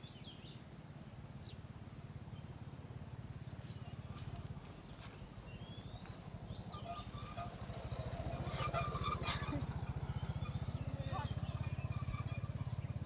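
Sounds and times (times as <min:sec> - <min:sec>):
small engine running: 0:02.8 - 0:13.0
faint bird chirps: 0:03.4 - 0:13.0.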